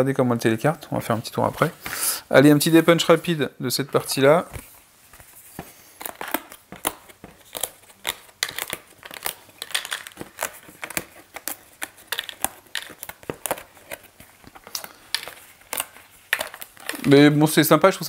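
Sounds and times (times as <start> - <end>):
cardboard snapping and tearing: 6.0 - 14.8.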